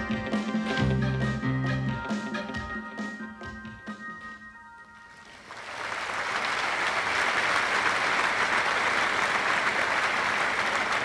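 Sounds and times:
audience applauding: 0:05.1 - 0:11.0.

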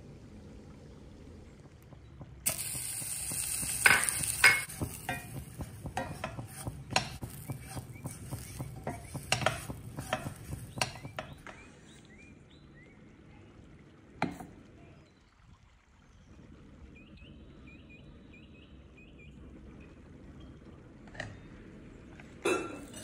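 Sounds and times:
faint sizzle: 0:00.0 - 0:12.2
spatula scraping steel pan: 0:02.5 - 0:11.4.

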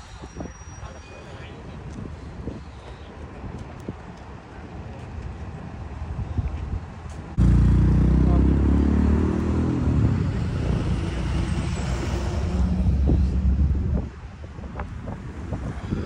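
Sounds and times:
car engine driving past: 0:07.4 - 0:14.2.

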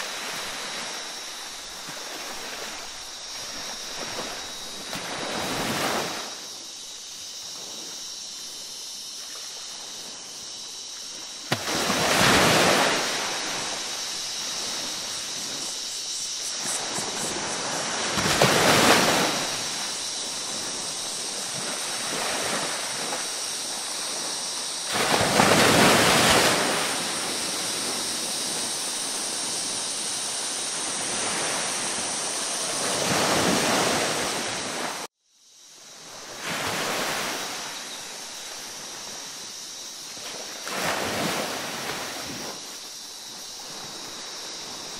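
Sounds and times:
ocean waves breaking: 0:00.0 - 0:06.5, 0:11.1 - 0:29.6, 0:30.2 - 0:35.1, 0:40.2 - 0:42.9.

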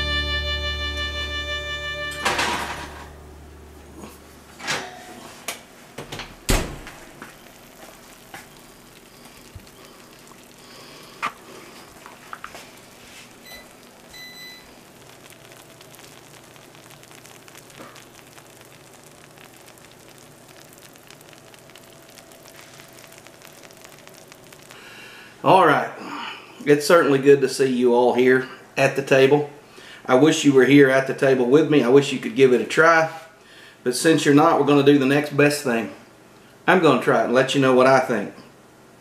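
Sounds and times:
faint sizzle of hot food: 0:05.2 - 0:38.5.

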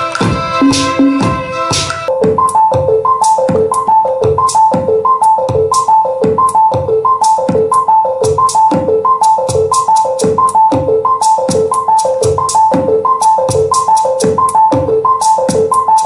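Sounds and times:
drum machine beat: 0:00.0 - 0:16.0
repeating two-note synth figure: 0:00.6 - 0:01.6.

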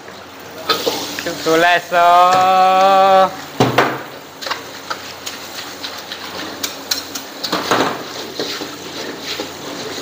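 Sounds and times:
pans and utensils clinking: 0:00.6 - 0:01.5, 0:03.6 - 0:10.0.

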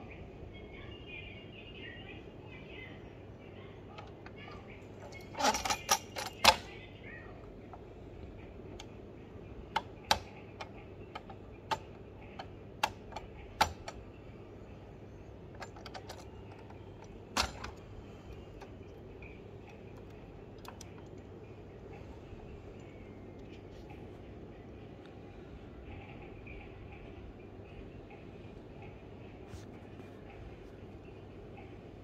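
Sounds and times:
model car parts clicking: 0:09.7 - 0:14.0.

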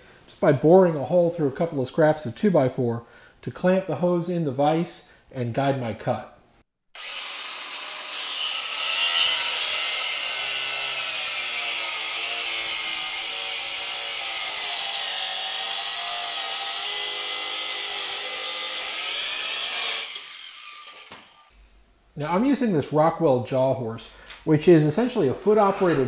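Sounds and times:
angle grinder cutting hose: 0:06.9 - 0:21.5.

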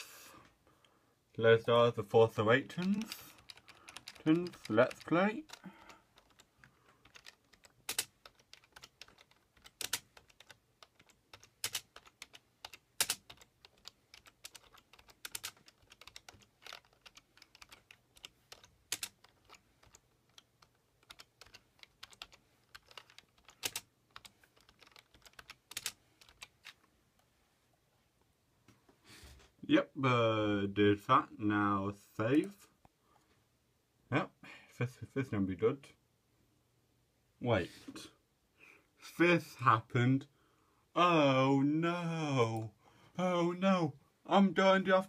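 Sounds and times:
typing on computer keyboard: 0:02.7 - 0:26.8.

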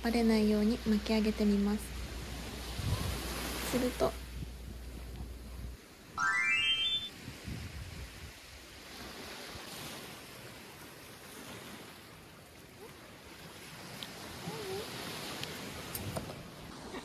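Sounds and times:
small waves washing onto sand: 0:00.0 - 0:05.1, 0:07.2 - 0:17.0
wind on microphone: 0:02.5 - 0:03.6.

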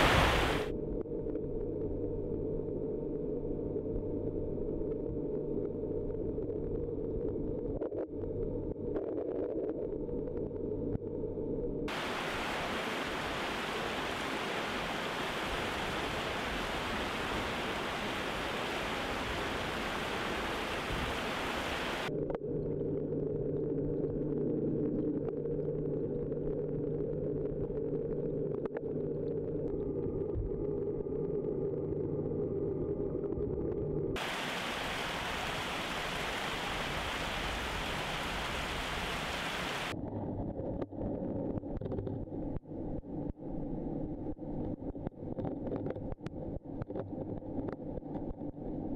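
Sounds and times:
rushing water: 0:00.0 - 0:00.7, 0:11.9 - 0:22.1, 0:34.2 - 0:39.9
muffled underwater hum: 0:00.0 - 0:48.9.

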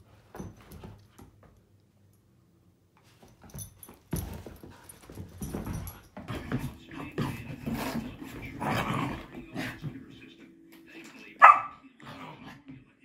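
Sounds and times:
dogs growling in play: 0:06.3 - 0:10.0, 0:12.0 - 0:12.6.

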